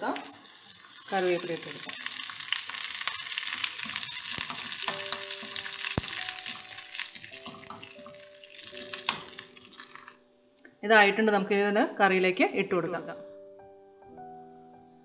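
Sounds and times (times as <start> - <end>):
leaves and chillies sizzling in oil: 0.0 - 10.2
metal spoon stirring: 1.9 - 10.2.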